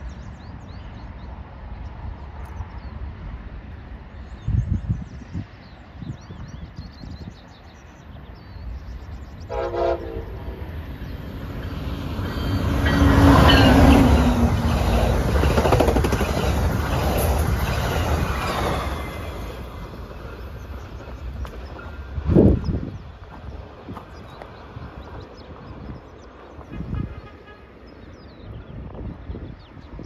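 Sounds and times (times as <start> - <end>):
train wheels rumbling on rails: 8.5 - 27.3
train horn blast: 9.5 - 10.7, 26.7 - 27.8.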